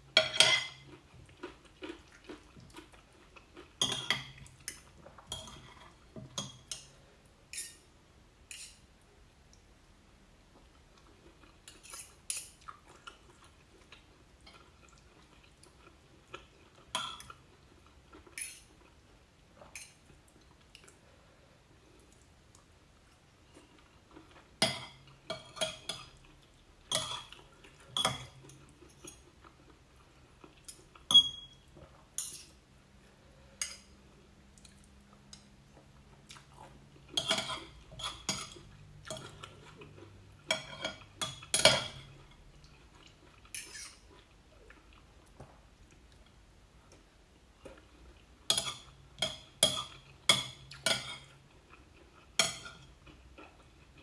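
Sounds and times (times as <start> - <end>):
cutlery clinking on ceramic plate: 0.2 - 0.9, 31.1 - 31.6.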